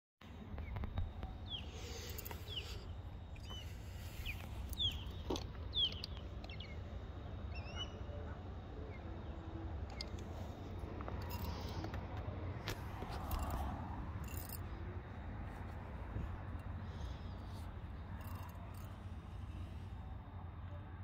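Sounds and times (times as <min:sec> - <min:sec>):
bird chirping: 0:00.6 - 0:10.2.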